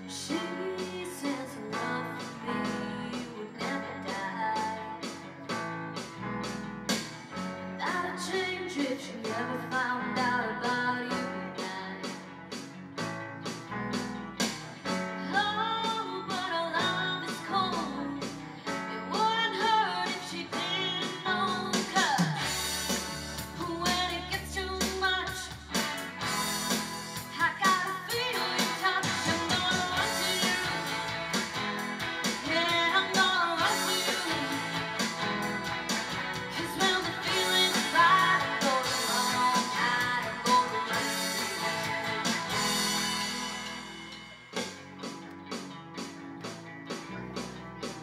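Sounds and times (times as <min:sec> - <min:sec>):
woman singing: 0:00.0 - 0:05.3, 0:07.8 - 0:12.3, 0:15.2 - 0:22.6, 0:23.4 - 0:25.8, 0:27.2 - 0:31.6, 0:32.2 - 0:35.6, 0:36.3 - 0:43.0
live rock band playing: 0:00.0 - 0:48.0.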